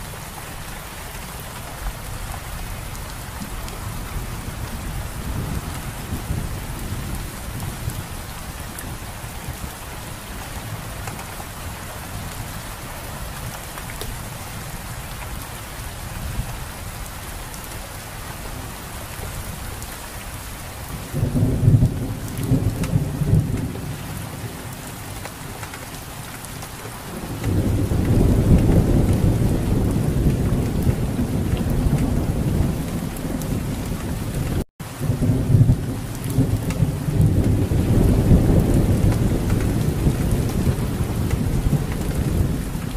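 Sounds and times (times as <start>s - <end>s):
rain falling on foliage: 0.0s - 42.9s
thunder rumbling: 2.1s - 12.7s, 21.0s - 25.6s, 27.0s - 42.9s.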